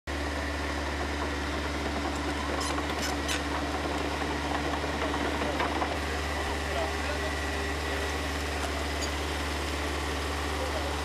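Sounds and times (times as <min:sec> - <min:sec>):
bulldozer diesel engine running: 0:00.1 - 0:11.0
brief high squeaks: 0:02.4 - 0:03.4.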